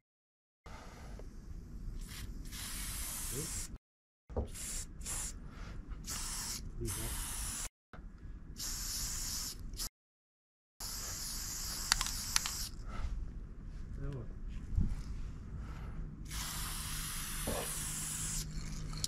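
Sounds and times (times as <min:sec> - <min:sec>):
spray paint can hissing: 0:02.0 - 0:03.8, 0:04.5 - 0:05.4, 0:06.0 - 0:07.7, 0:08.6 - 0:09.9, 0:10.8 - 0:12.8, 0:16.3 - 0:19.0.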